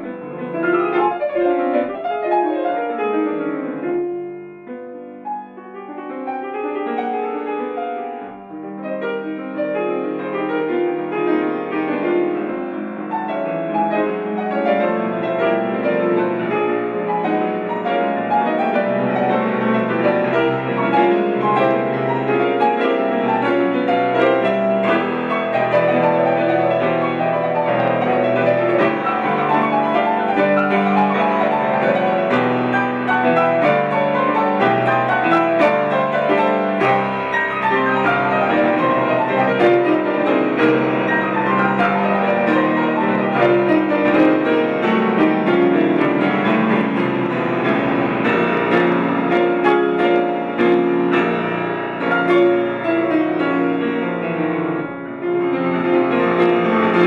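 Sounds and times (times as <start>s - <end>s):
solo grand piano: 0.0s - 57.0s.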